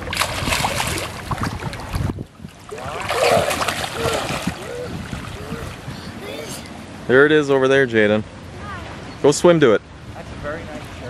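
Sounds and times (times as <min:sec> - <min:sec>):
child swimming and splashing: 0:02.8 - 0:06.8.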